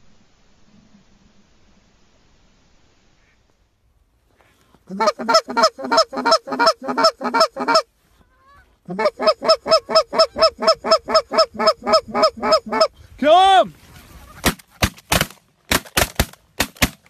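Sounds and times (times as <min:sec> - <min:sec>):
goose call clucks: 0:04.4 - 0:13.0, 0:13.9 - 0:14.9.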